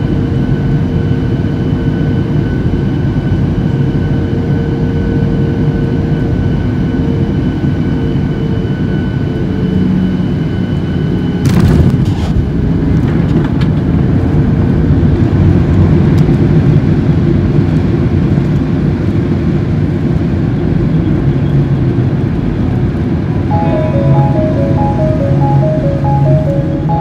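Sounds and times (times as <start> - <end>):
low rumble of engines and wheels: 0.0 - 27.0
music: 23.4 - 27.0.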